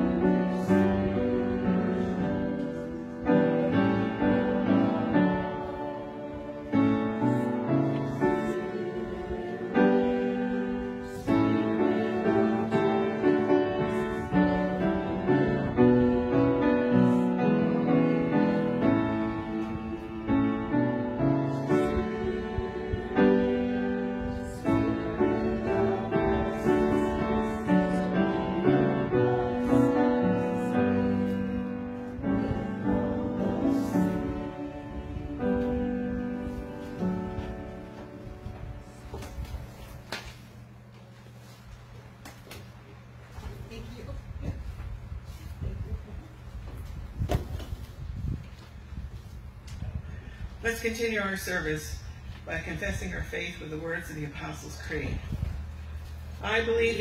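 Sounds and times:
slow piano piece: 0:00.0 - 0:40.9.

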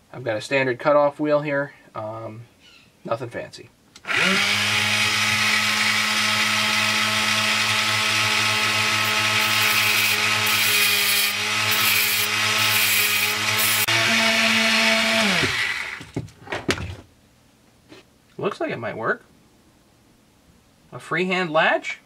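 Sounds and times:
motor winding down: 0:04.0 - 0:16.0
small motor whine: 0:04.1 - 0:16.0.

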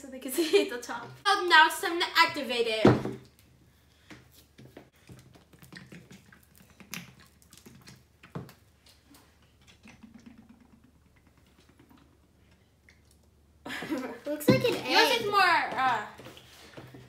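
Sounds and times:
slime squishing in a tub: 0:04.1 - 0:09.8.

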